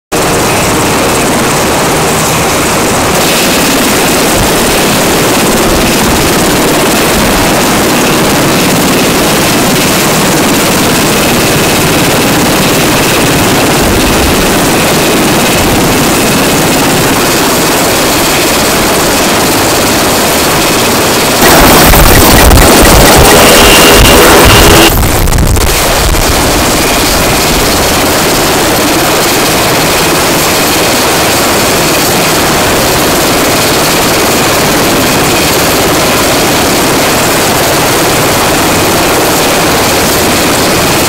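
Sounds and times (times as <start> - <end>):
helicopter turbine and rotor noise: 0.1 - 41.0.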